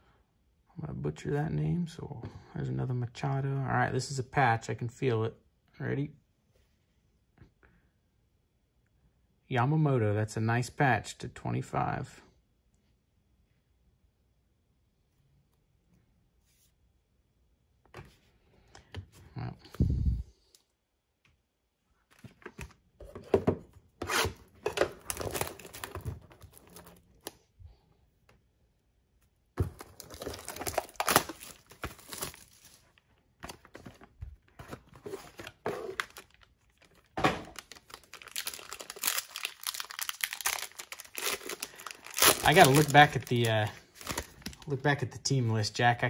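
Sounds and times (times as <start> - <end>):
foil card pack crinkling: 24.8 - 27.4, 29.6 - 44.8
plastic shrink-wrap tearing: 29.9 - 32.9, 35.4 - 44.7.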